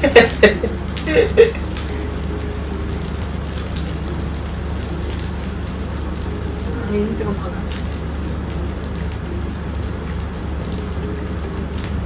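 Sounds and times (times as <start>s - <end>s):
people laughing: 0.0s - 1.7s
meat sizzling on a grill: 0.0s - 12.0s.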